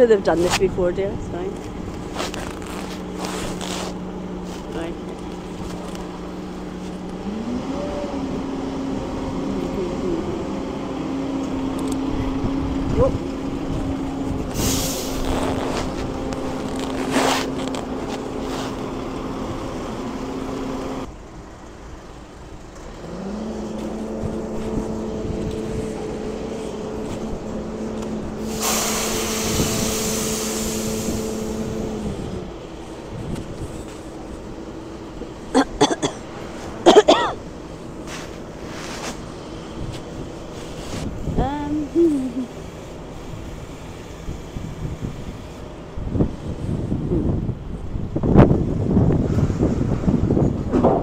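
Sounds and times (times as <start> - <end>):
hissing gusts: 14.4 - 16.3, 23.0 - 32.6.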